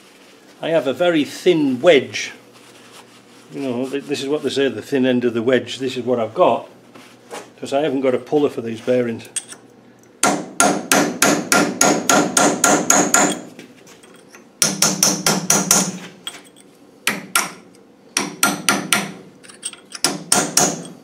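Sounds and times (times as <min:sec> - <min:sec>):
hammer striking steel wedge: 0:10.2 - 0:13.5, 0:14.6 - 0:16.0, 0:17.1 - 0:17.6, 0:18.2 - 0:19.2, 0:20.0 - 0:21.0.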